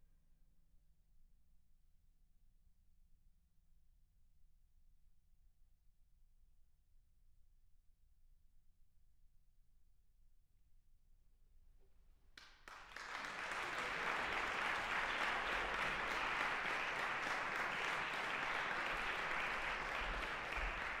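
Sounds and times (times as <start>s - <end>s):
audience applause: 12.4s - 21.0s.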